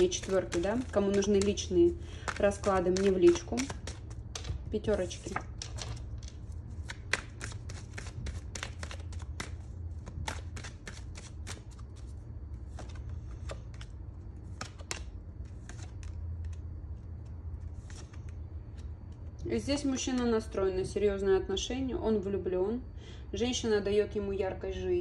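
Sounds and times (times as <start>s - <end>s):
cards being shuffled: 0.0s - 19.2s.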